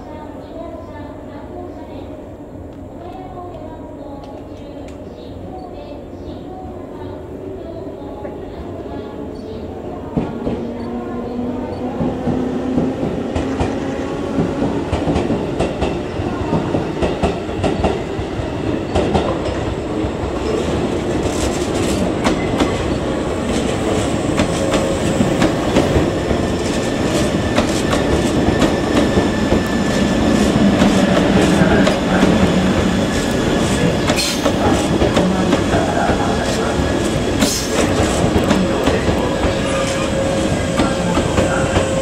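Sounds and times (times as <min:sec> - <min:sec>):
train rumble: 0:00.4 - 0:42.0
train wheels clacking over rail joints: 0:24.4 - 0:39.6.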